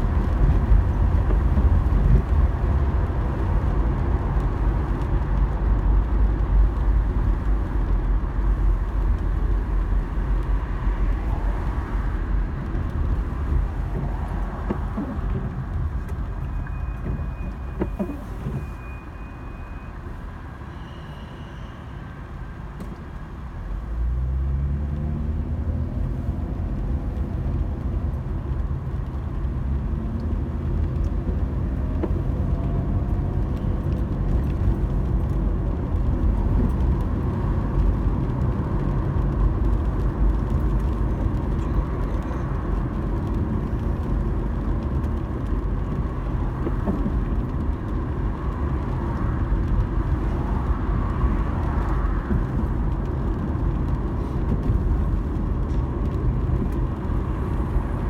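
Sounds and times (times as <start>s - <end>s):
tyres on the road: 0.0s - 58.0s
car engine accelerating: 23.9s - 58.0s.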